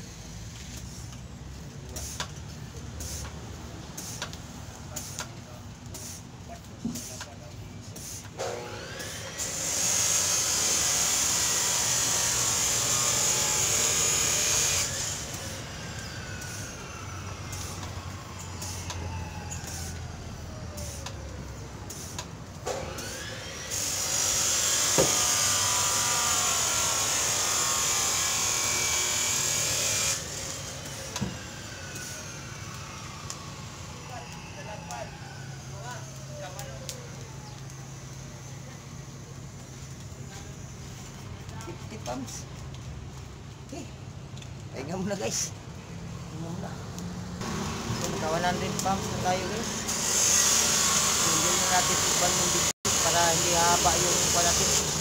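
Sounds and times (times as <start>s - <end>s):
power tool motor whining: 8.4s - 21.2s, 21.9s - 36.3s, 47.4s - 55.0s.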